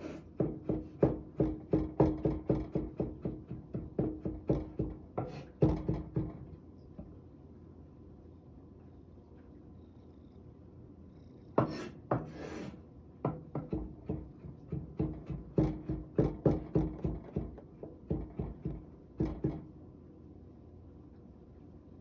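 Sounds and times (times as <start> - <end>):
knife chopping on a wooden board: 0.0 - 6.4, 11.6 - 12.5, 13.2 - 19.7
knife scraping on a cutting board: 5.2 - 5.6, 11.6 - 12.8.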